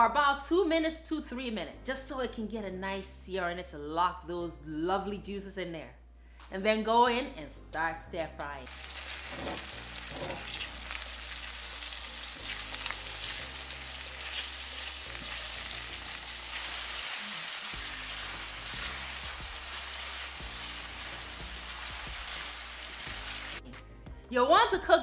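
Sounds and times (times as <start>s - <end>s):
chicken sizzling in oil: 8.7s - 23.6s
spatula scraping a pan: 9.1s - 10.7s.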